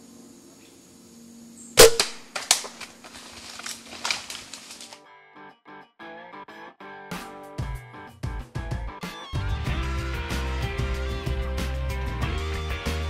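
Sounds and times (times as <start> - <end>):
bow shot crack: 1.8 - 5.0
cracks and thumps: 1.8 - 5.0
guitar music: 5.0 - 8.1, 8.7 - 13.0.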